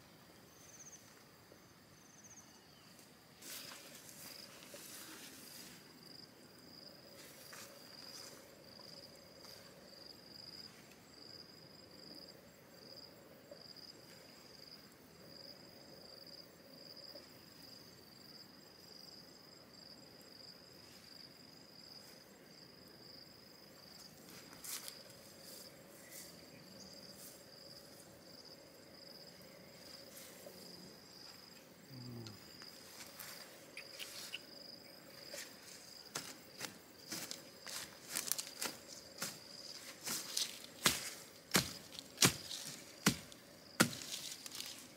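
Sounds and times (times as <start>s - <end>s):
insect trill chorus: 0.0s - 44.9s
rustles: 2.8s - 11.3s, 23.8s - 44.9s.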